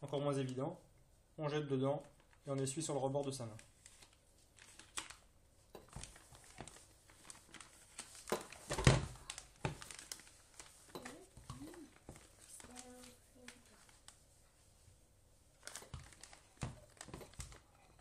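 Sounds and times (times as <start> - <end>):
plastic piping bag crinkling: 2.0 - 14.8, 15.5 - 18.0.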